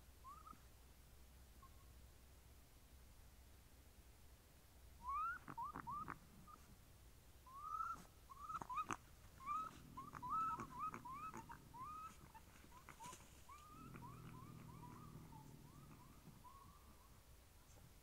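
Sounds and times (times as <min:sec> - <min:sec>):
distant animal yelping calls: 0:00.2 - 0:00.6, 0:05.0 - 0:06.7, 0:07.4 - 0:17.2.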